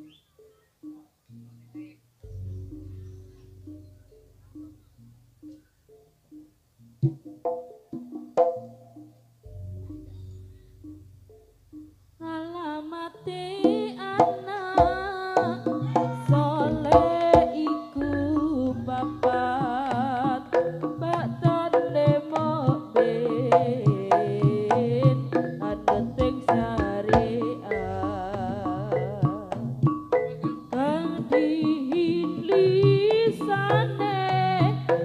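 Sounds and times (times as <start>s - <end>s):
high wavering melody: 0.0s - 7.0s, 8.5s - 35.0s
hand drums and percussion: 6.9s - 12.0s, 13.4s - 35.0s.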